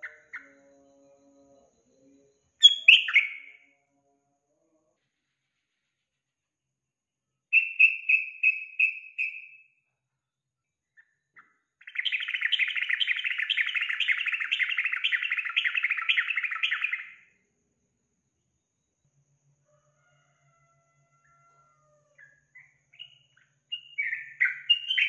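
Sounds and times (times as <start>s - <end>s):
bird singing clear notes: 2.6s - 3.5s.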